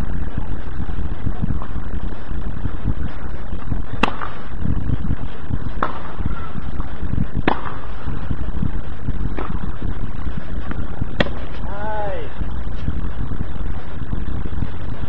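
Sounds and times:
steady low rumble: 0.0 - 15.0
tennis ball popping off rackets: 11.2 - 11.6.

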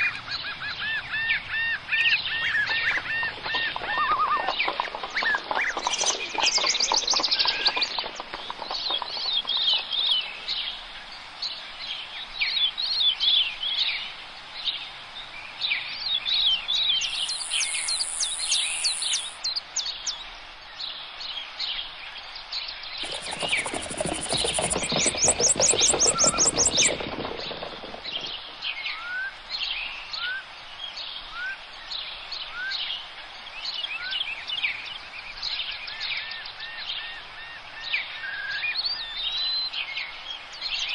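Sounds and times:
songbirds singing and chirping: 0.0 - 40.9
bird rising whistles: 17.0 - 19.4.

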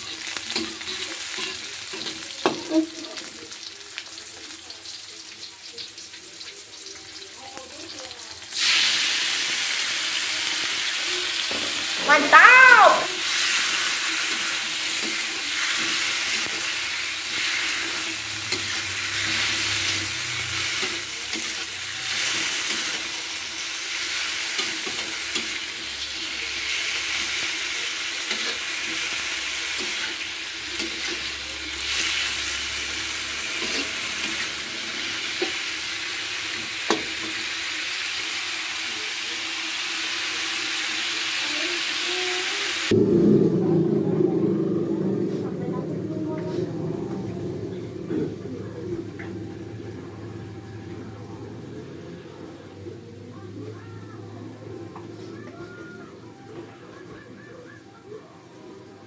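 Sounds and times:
mushrooms sizzling in hot oil: 0.0 - 42.9.

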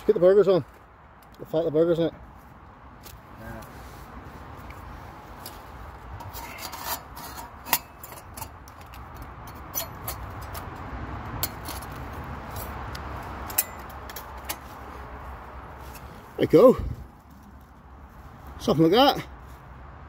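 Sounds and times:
metal panels scraping: 6.1 - 10.8.

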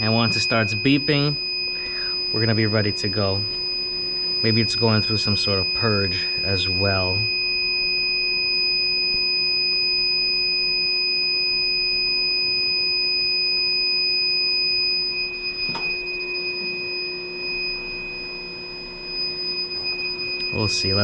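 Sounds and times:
high-pitched electronic tone: 0.0 - 3.6, 15.0 - 21.0.

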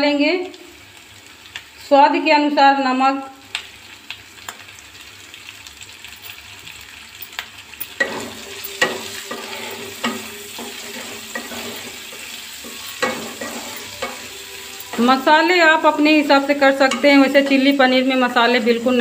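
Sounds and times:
vegetables sizzling in hot oil: 0.0 - 19.0
wooden spatula scraping a pan: 8.0 - 15.2.

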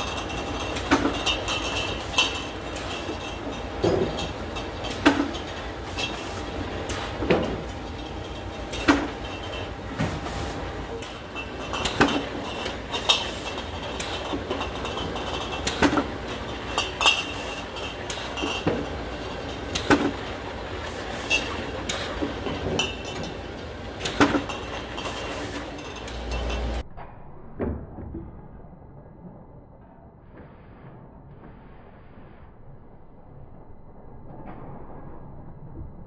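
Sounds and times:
chain conveyor and drive noise: 0.0 - 26.8.

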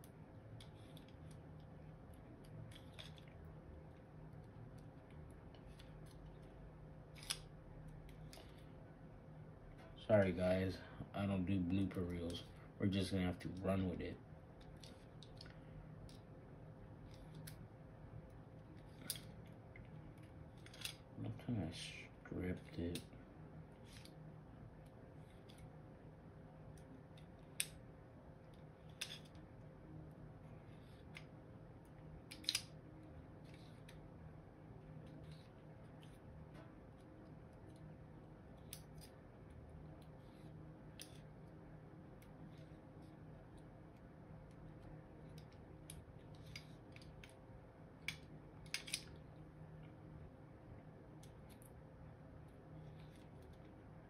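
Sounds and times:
faint low hum: 0.0 - 54.0
small metal parts clicking: 7.1 - 8.5, 20.6 - 21.0, 32.3 - 32.8
pistol parts clicking together: 32.3 - 32.8, 48.0 - 49.2.

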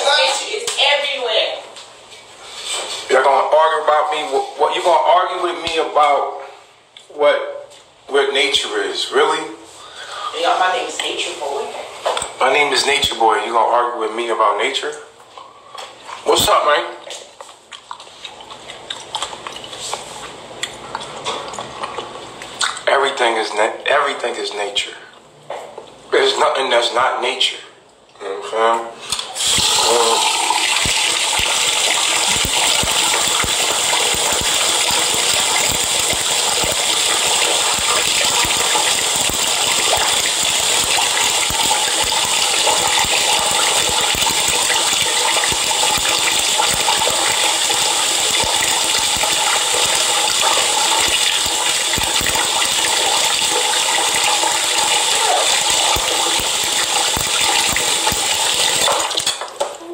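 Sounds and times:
water running: 29.1 - 59.7.

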